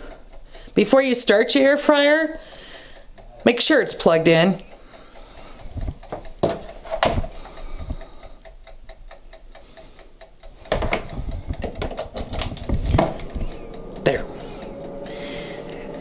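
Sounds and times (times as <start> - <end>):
dial timer ticking rapidly: 0.0 - 16.0
appliance knocks and clatter: 10.7 - 13.3.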